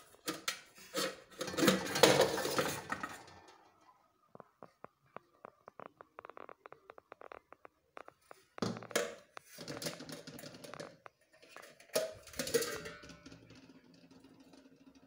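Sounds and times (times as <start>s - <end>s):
pot clattering and scraping: 0.0s - 3.8s, 8.0s - 15.0s.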